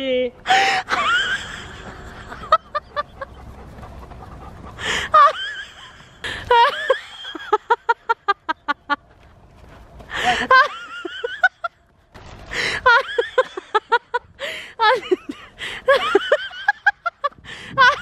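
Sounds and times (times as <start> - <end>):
woman laughing: 0.5 - 3.4, 4.8 - 9.1, 10.1 - 11.8, 12.8 - 18.0.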